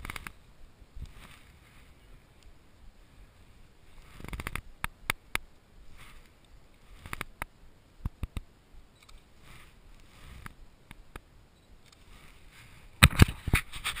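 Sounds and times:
camera handling clicks and knocks: 0:13.0 - 0:13.5.

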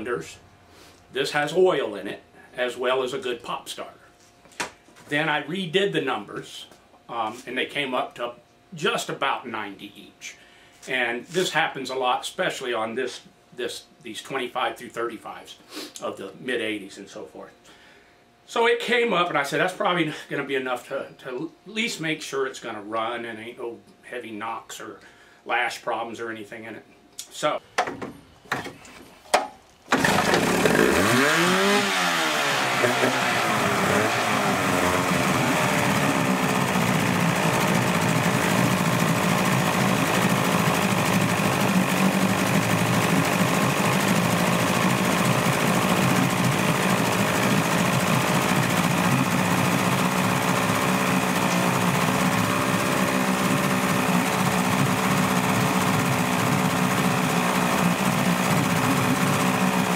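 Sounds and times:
outboard motor starting and running: 0:29.9 - 0:59.9.

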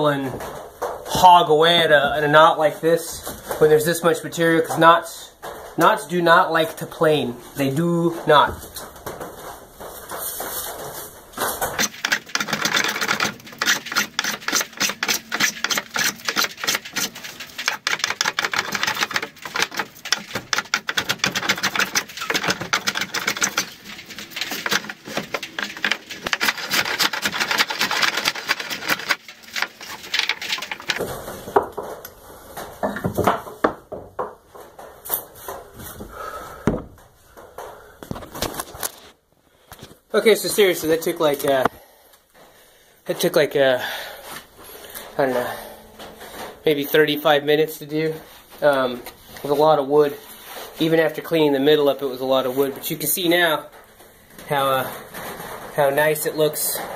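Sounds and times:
hand tools cutting wood: 0:11.4 - 0:31.8.

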